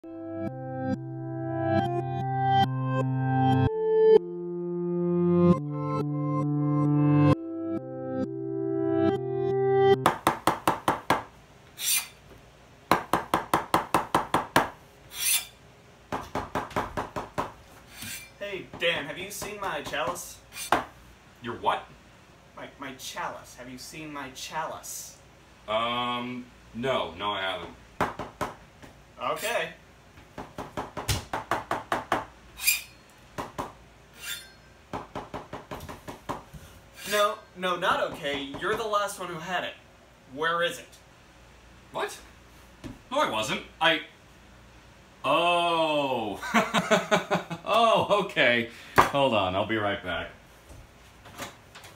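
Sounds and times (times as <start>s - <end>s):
synth music: 0.0s - 10.0s
knife scraping cutting board: 11.8s - 12.2s, 15.1s - 15.6s, 17.9s - 18.4s, 20.5s - 20.8s, 32.6s - 33.0s, 34.2s - 34.6s, 37.0s - 37.3s
short hissing sounds: 11.8s - 12.2s, 15.1s - 15.6s, 20.5s - 20.8s.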